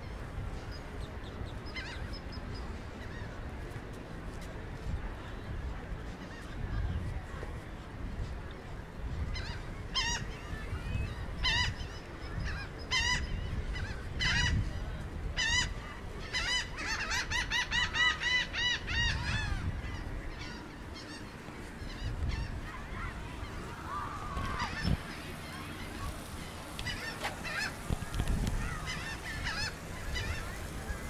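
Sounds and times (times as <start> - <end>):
gull calling: 15.4 - 31.0.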